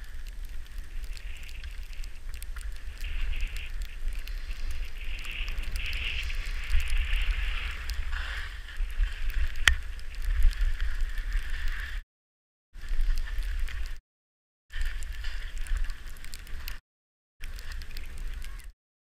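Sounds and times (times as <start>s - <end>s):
skis scraping over snow: 0.0s - 12.0s, 14.8s - 16.8s
wind rumbling on microphone: 0.0s - 12.0s, 12.8s - 14.0s, 14.7s - 16.8s, 17.4s - 18.7s.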